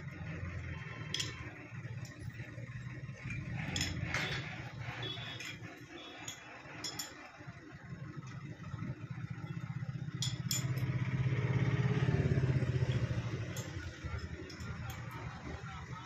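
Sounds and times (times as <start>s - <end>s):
vehicle engine: 0.0s - 16.0s
spanner clinking on steel: 1.0s - 2.4s, 3.2s - 7.4s, 10.1s - 11.0s, 12.7s - 15.6s.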